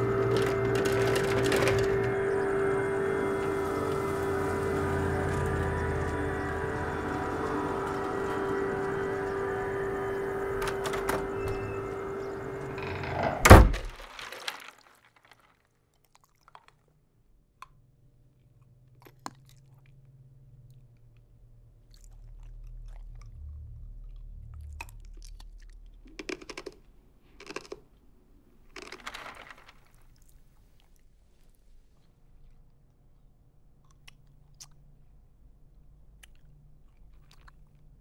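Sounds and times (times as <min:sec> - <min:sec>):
heavy thud: 0:13.2 - 0:14.1
faint low hum: 0:17.8 - 0:27.4.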